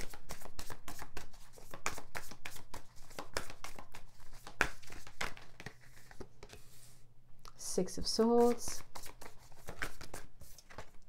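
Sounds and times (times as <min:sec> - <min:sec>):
cards being shuffled by hand: 0:00.0 - 0:07.0, 0:08.4 - 0:11.0.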